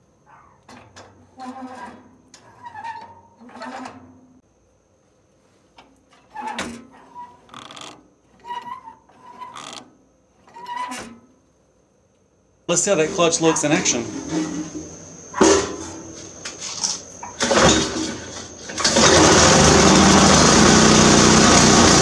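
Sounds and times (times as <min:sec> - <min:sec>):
metal mower parts squeaking and knocking: 0:00.4 - 0:04.3, 0:05.8 - 0:11.3.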